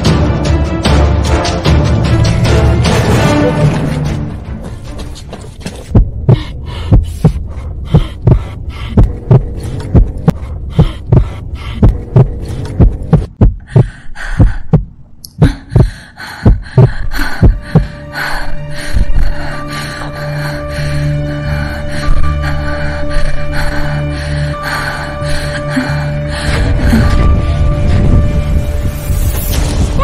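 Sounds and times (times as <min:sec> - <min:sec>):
heartbeat thumps: 0:05.6 - 0:18.2.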